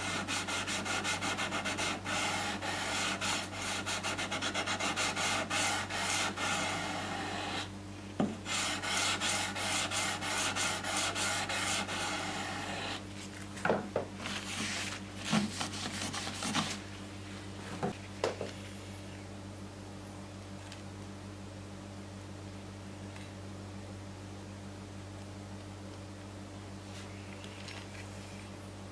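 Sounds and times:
sandpaper scraping on metal: 0.0 - 7.7, 8.5 - 13.0.

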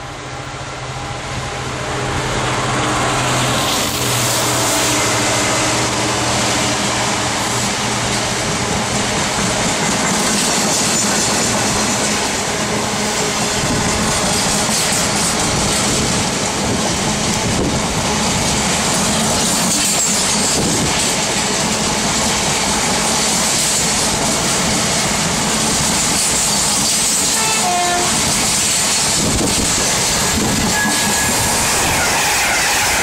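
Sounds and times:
train wheels clattering over rails: 1.6 - 33.0
train horn: 4.4 - 7.5, 27.2 - 28.5, 30.3 - 33.0.

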